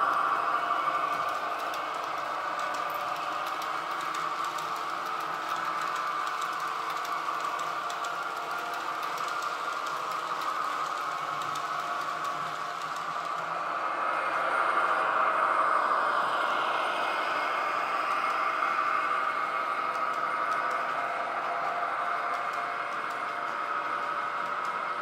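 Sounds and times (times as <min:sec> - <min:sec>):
model train running hum: 0:00.0 - 0:25.0
wheels clicking over rail joints: 0:00.8 - 0:13.5.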